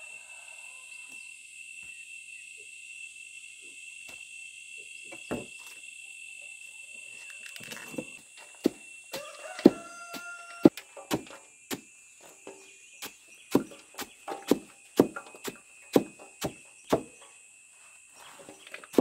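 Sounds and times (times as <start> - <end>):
insects chirring: 0.0 - 19.0
sharp knocks: 13.5 - 17.2.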